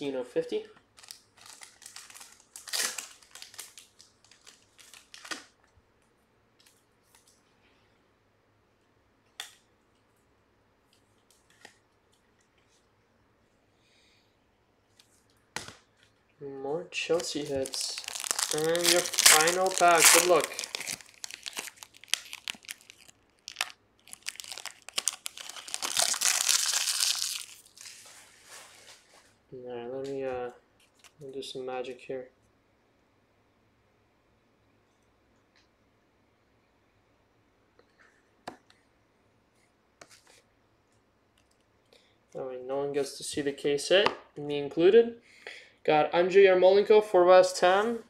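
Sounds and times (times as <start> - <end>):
foil wrapper crackling: 1.0 - 5.4, 17.1 - 28.1
card rustling and crinkling: 1.0 - 5.5, 17.1 - 29.4.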